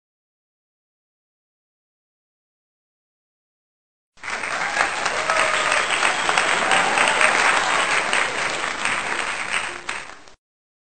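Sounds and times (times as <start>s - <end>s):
crowd applauding: 4.2s - 10.4s.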